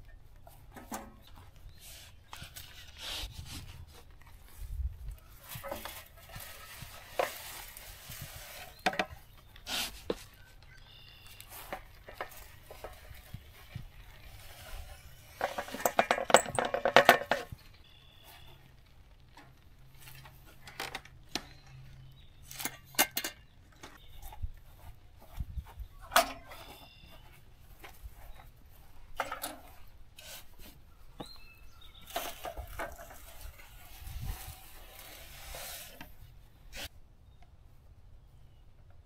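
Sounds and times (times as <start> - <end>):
equipment clinking and knocking: 15.4 - 17.6, 22.6 - 24.4.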